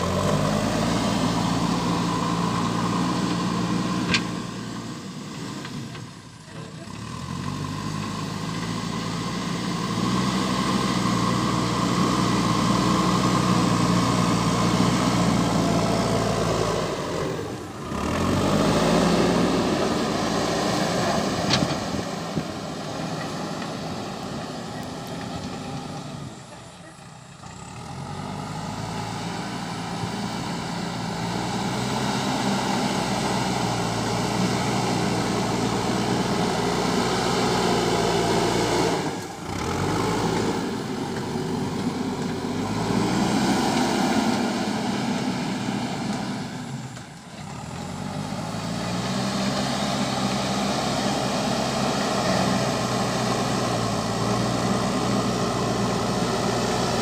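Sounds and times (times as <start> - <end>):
diesel engine revving under load: 0.0 - 57.0
loader bucket pushing soil: 0.0 - 57.0.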